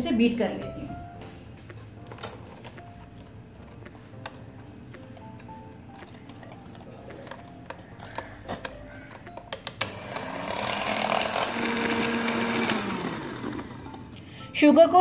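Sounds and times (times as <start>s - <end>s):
mixer clicks: 2.0s - 14.2s
electric hand mixer whisking: 9.8s - 14.3s.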